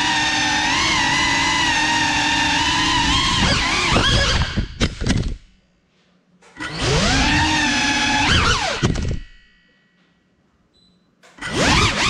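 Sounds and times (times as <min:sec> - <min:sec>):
drone motors whining: 0:00.0 - 0:05.4, 0:06.6 - 0:09.5, 0:11.4 - 0:12.0.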